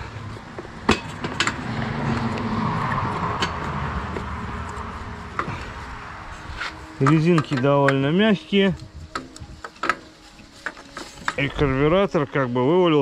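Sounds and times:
sharp clicks and knocks: 0:00.4 - 0:05.6.

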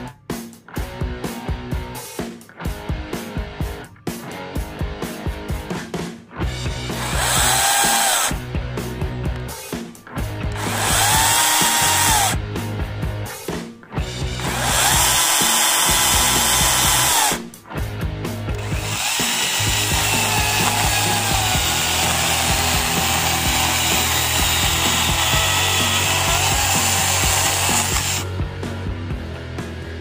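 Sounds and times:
chainsaw cutting through log: 0:06.9 - 0:08.4, 0:10.5 - 0:12.4, 0:14.4 - 0:17.5, 0:18.6 - 0:28.2
electric chainsaw whining: 0:06.9 - 0:08.4, 0:10.5 - 0:12.4, 0:14.4 - 0:17.5, 0:18.6 - 0:28.3.

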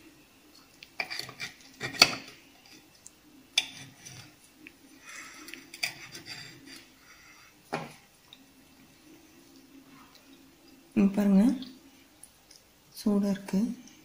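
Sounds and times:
knife scraping and clinking on plate: 0:01.0 - 0:02.4, 0:05.4 - 0:06.9.

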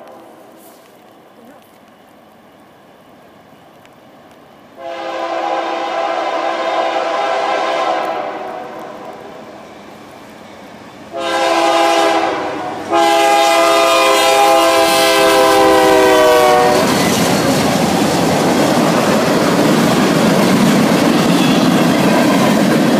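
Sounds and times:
train passing with wheel noise: 0:00.0 - 0:22.9
locomotive air horn blasts: 0:04.8 - 0:08.8, 0:11.1 - 0:17.0.

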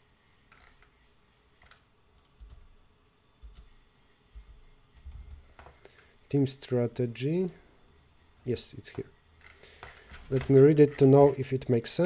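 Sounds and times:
computer mouse clicking: 0:01.6 - 0:02.7.

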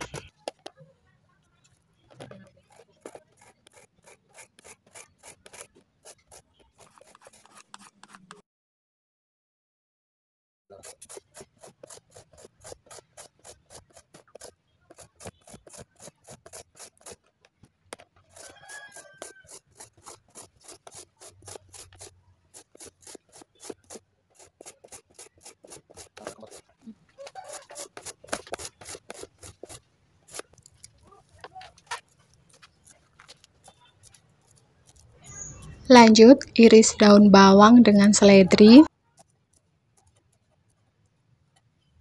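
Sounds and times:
carrot being grated: 0:02.7 - 0:08.3, 0:10.8 - 0:17.3, 0:18.3 - 0:30.5.

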